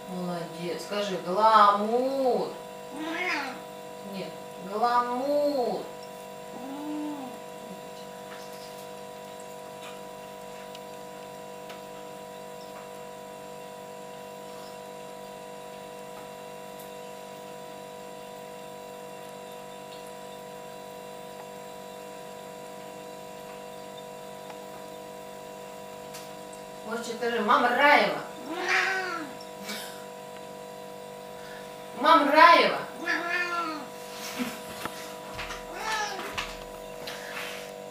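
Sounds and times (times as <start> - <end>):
machine hum: 0.0 - 37.9.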